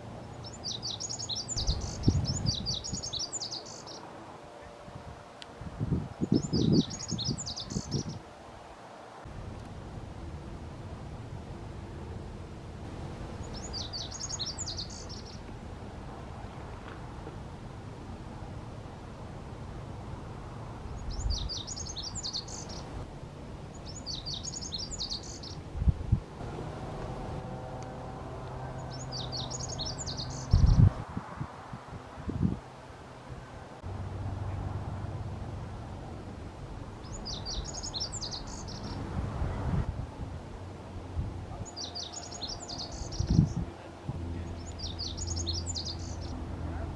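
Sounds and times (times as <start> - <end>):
bird singing high jumbled phrases: 0.4 - 4.0, 6.2 - 8.2, 13.4 - 15.4, 21.0 - 22.9, 23.7 - 25.6, 28.8 - 31.0, 37.0 - 39.0, 41.6 - 43.6, 44.5 - 46.4
steady low rumble: 42.4 - 46.9.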